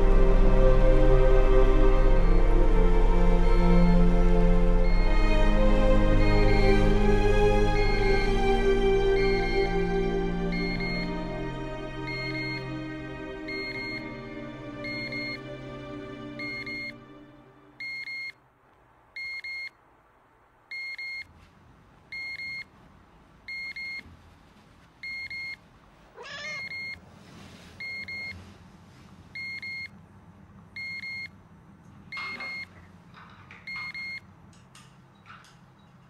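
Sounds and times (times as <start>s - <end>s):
electronic alarm double beeps: 10.5s - 11.1s, 12.1s - 12.6s, 14.9s - 15.4s, 17.8s - 18.4s, 19.2s - 19.8s, 20.7s - 21.3s, 30.8s - 31.3s, 32.2s - 32.7s, 33.7s - 34.2s
cat meowing: 26.1s - 27.0s.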